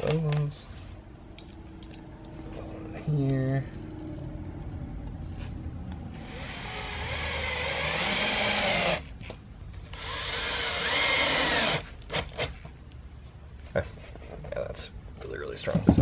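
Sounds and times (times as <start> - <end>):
cordless drill driving screws: 6.0 - 9.0, 9.9 - 12.6.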